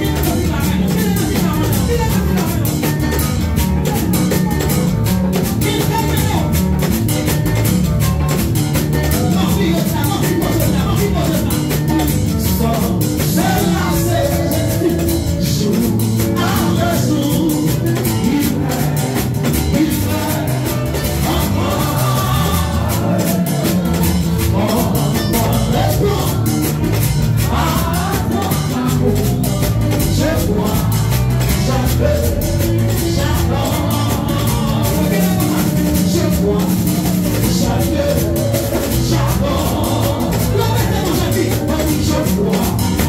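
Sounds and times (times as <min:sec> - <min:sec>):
upbeat worship music: 0:00.0 - 0:43.0
voices singing: 0:12.9 - 0:43.0.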